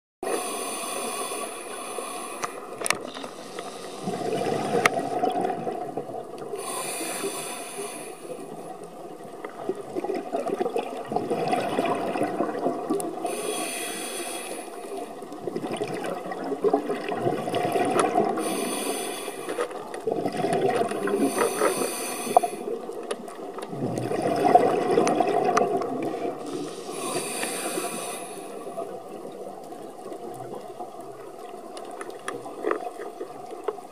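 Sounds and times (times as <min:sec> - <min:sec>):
hissing regulator inhalations: 0:00.3 - 0:04.3, 0:06.6 - 0:08.6, 0:13.2 - 0:15.1, 0:18.4 - 0:19.8, 0:21.1 - 0:22.8, 0:26.4 - 0:28.8
gurgling exhaled bubbles: 0:03.9 - 0:14.2, 0:14.8 - 0:19.0, 0:19.9 - 0:31.3.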